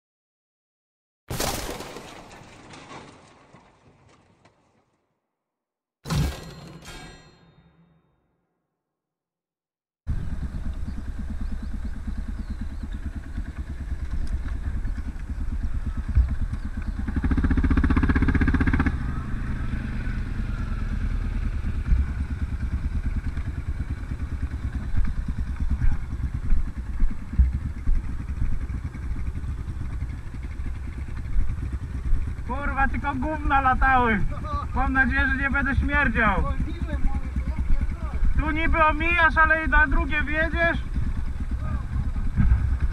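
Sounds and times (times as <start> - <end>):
quad bike engine running: 10.1 - 42.9.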